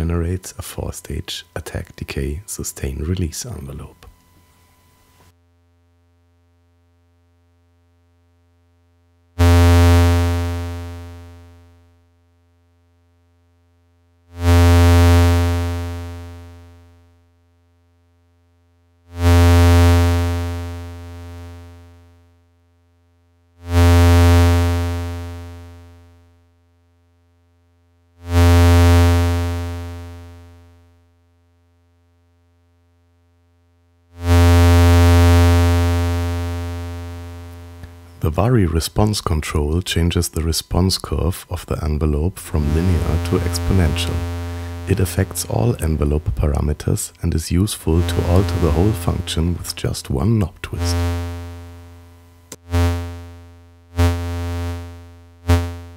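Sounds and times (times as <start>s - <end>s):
low buzzy synthesizer notes: 36.9s - 53.0s.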